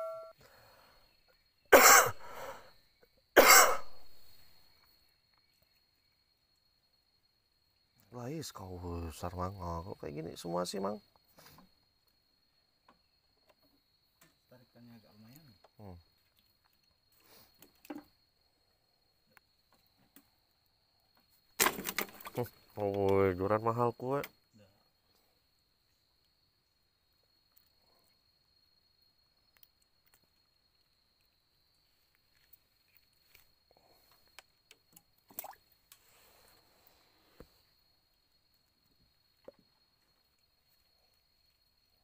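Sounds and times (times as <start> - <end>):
high insect drone: 0.0 - 42.0
person coughing: 1.7 - 2.2, 3.4 - 3.9.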